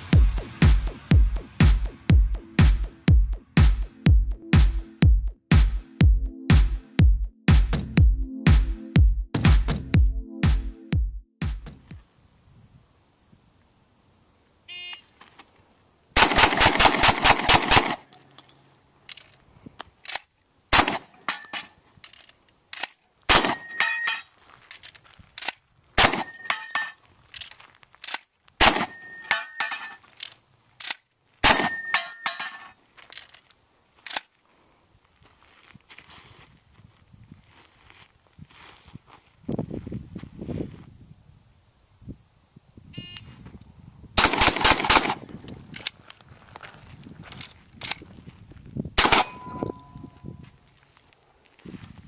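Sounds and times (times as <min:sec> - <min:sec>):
shotgun shots: 0:16.2 - 0:18.1, 0:20.7 - 0:21.2, 0:23.3 - 0:23.8, 0:26.0 - 0:26.5, 0:28.6 - 0:29.0, 0:44.2 - 0:45.3, 0:49.0 - 0:49.6
shell loading clicks: 0:18.1 - 0:20.3, 0:30.2 - 0:31.0
steel targets ringing: 0:23.4 - 0:24.3, 0:26.1 - 0:27.1, 0:28.7 - 0:30.0, 0:31.4 - 0:32.7, 0:49.0 - 0:50.4.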